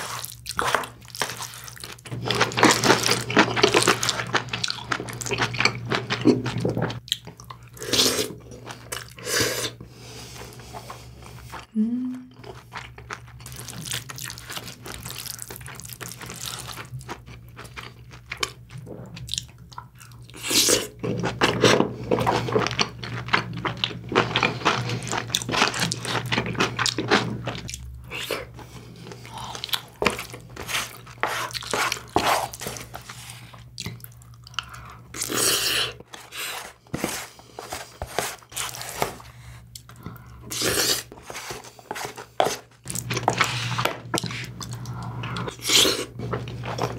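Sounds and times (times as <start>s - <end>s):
wet chewing and smacking: 0.2s - 7.8s, 12.4s - 21.6s, 22.2s - 35.4s.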